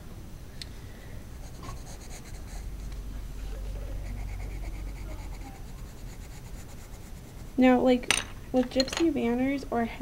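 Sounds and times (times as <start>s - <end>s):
low steady rumble: 0.0s - 10.0s
pencil scratching on paper: 1.4s - 2.9s, 3.6s - 7.7s.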